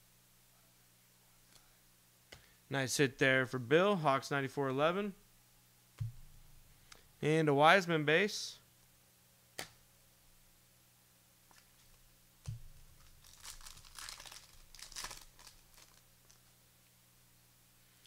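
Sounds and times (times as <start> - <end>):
soft thump: 6.0 - 6.4
wrapper crinkling and tearing: 12.8 - 16.5.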